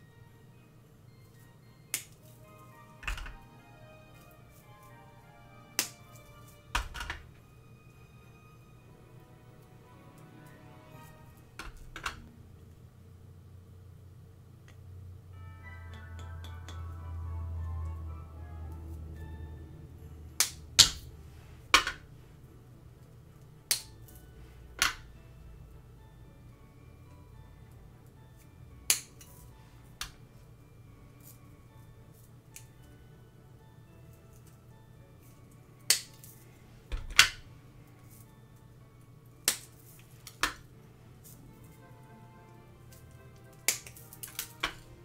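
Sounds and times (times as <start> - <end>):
sugar candy snapping: 5.7 - 6.3, 23.7 - 24.2, 28.9 - 29.4, 35.8 - 36.4, 39.4 - 40.7, 42.9 - 44.9.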